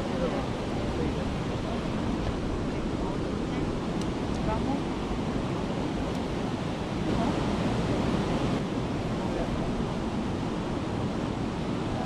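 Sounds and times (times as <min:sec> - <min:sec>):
water rushing over a weir: 0:00.0 - 0:12.0
wind on microphone: 0:00.0 - 0:12.0.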